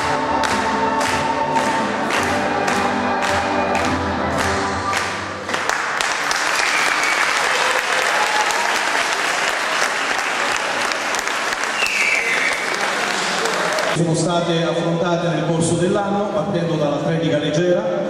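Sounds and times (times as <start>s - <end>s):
music: 0.0s - 6.4s
audience applauding: 0.0s - 14.0s.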